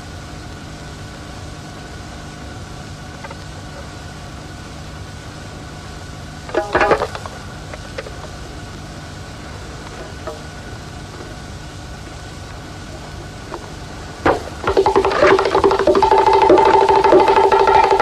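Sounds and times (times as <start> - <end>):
steady hum: 0.0 - 18.0
fingers tapping on hand drum: 6.5 - 7.3, 14.3 - 18.0.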